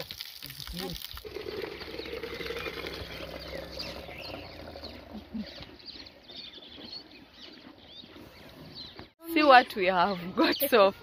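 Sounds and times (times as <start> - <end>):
urine stream into plastic jug: 0.0 - 5.6
small birds chirping: 1.5 - 11.0.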